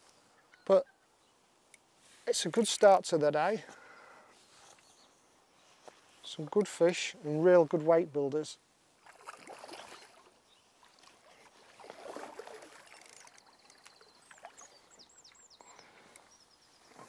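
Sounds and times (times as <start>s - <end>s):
faint water splashing: 8.9s - 17.0s.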